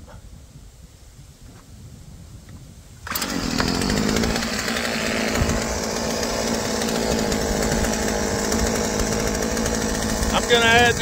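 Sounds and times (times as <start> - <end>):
chainsaw engine running: 3.0 - 11.0.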